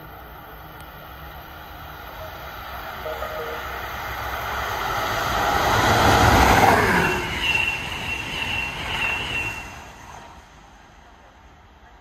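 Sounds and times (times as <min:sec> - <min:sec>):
electric train passing: 0:00.0 - 0:11.8
high whine: 0:03.0 - 0:04.6.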